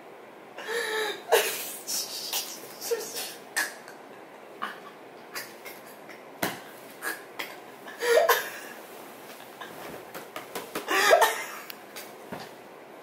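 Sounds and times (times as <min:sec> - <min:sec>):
sharp taps and rustles in bed: 0:09.2 - 0:10.9, 0:11.9 - 0:12.6.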